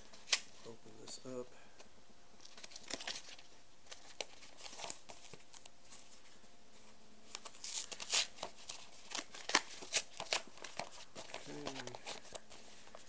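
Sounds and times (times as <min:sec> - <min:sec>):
package tearing and crinkling: 0:02.4 - 0:05.7, 0:07.3 - 0:12.4.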